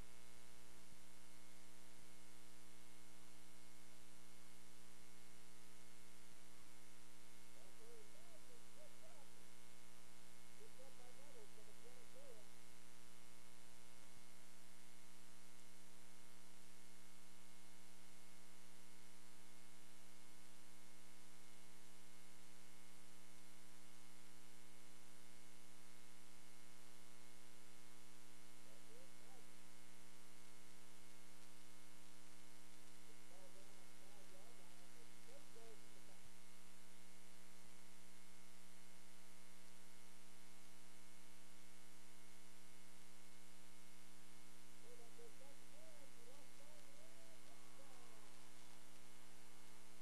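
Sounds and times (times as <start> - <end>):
faint wavering sounds: 0.0 - 16.6, 43.9 - 50.0
electrical hum and buzz: 0.0 - 50.0.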